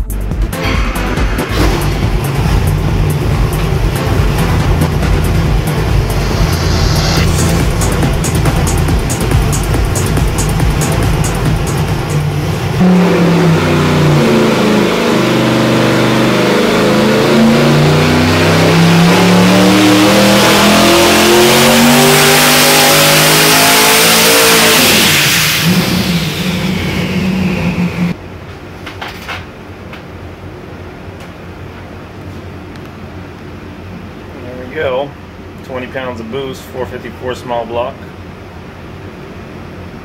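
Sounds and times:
engine revving on a dyno: 0:00.6 - 0:28.2.

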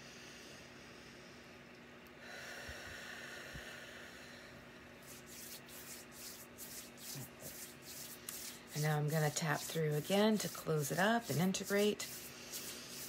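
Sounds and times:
long breath out: 0:02.2 - 0:04.6
palms rubbing together: 0:05.0 - 0:13.0.

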